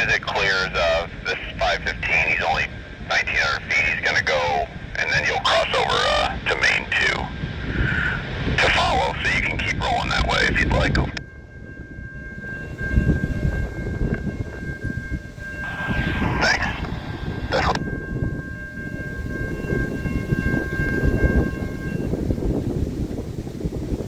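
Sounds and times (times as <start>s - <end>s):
crossing warning bell ringing: 0.0s - 7.8s, 8.5s - 24.0s
train low rumble: 0.0s - 24.0s
brief louder noise: 15.6s - 17.8s.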